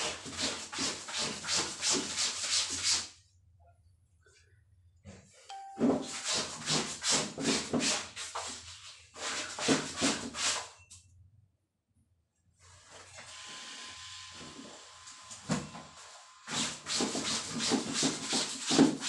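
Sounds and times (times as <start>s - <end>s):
wet laundry scrubbed by hand: 0.0s - 3.2s, 6.0s - 10.8s, 16.5s - 19.0s.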